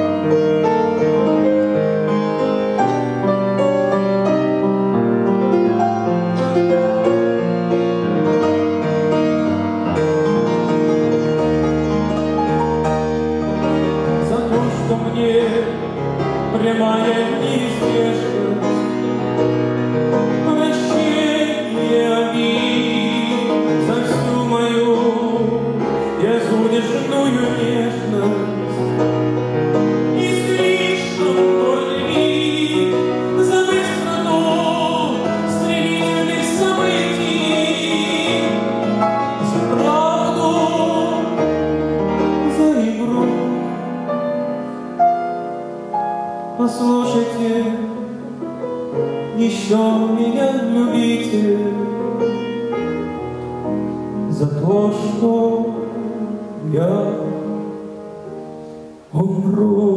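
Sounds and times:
grand piano: 0.0 - 59.9
man singing with vibrato: 13.7 - 44.8, 46.3 - 52.6, 54.2 - 58.0, 58.8 - 59.9.

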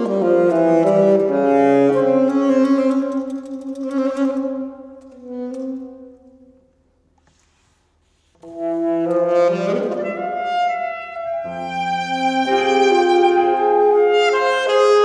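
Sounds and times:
wind ensemble playing chords: 9.2 - 15.0.

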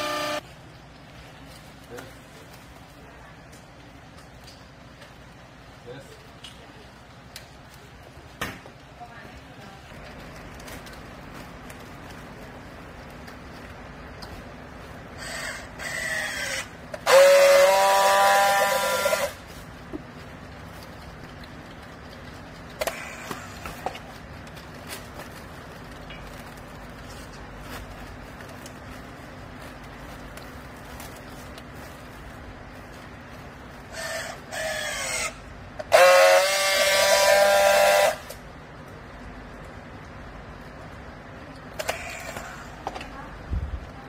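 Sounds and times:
strapping tool motor bursts: 0.0 - 0.4, 15.2 - 19.4, 33.9 - 38.4, 41.8 - 42.8
strapping tool motor whine: 0.0 - 0.4, 15.2 - 19.4
strapping tool motor whirring: 0.0 - 0.4, 15.2 - 19.4
loud steady buzz of welding: 0.0 - 44.0.

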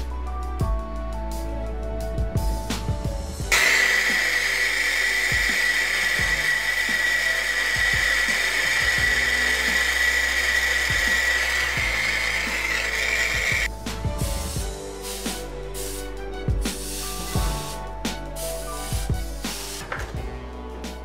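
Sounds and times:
blowtorch hissing and whistling: 3.5 - 13.7.

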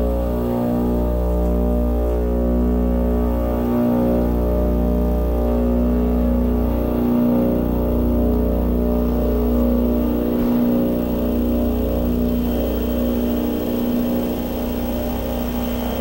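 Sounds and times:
electronic feedback drone: 5.5 - 16.0.

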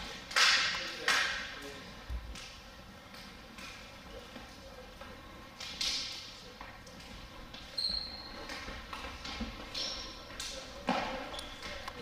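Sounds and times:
sneakers squeaking on wood floor: 7.6 - 11.8.

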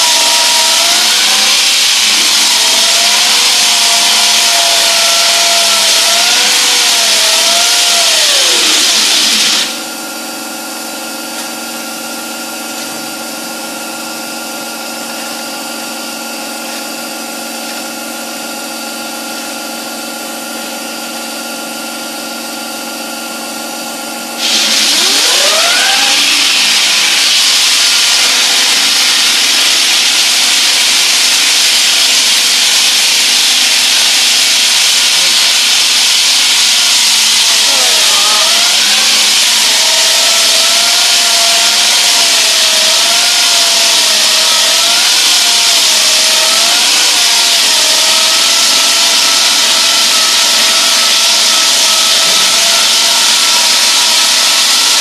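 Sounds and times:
saw blade cutting concrete: 0.0 - 9.9, 24.4 - 55.0.

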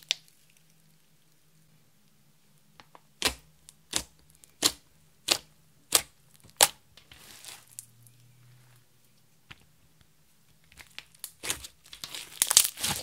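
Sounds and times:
soft slime crackle: 3.2 - 8.4, 10.5 - 13.0.

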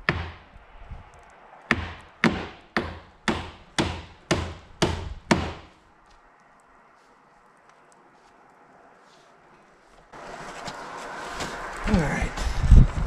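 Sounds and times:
hammer striking nails: 0.0 - 0.4, 1.7 - 5.7.

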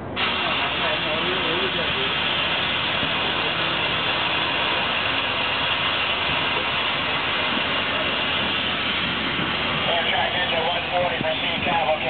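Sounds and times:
locomotive running with rushing hiss: 0.0 - 12.0.

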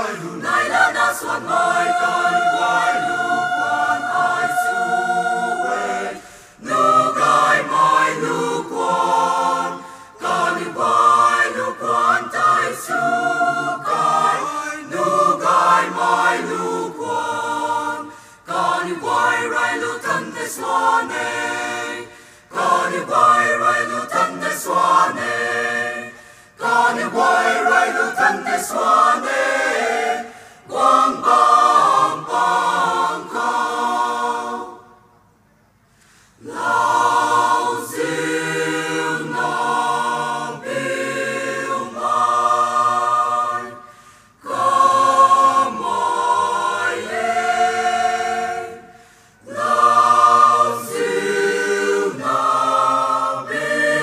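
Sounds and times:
mixed choir singing: 0.0 - 35.1, 36.4 - 54.0.

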